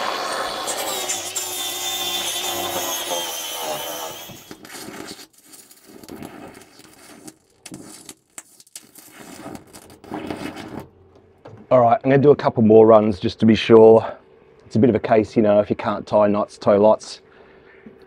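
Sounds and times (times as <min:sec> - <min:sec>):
angle grinder grinding: 0:00.0 - 0:05.8
welding arc crackling: 0:03.6 - 0:10.8.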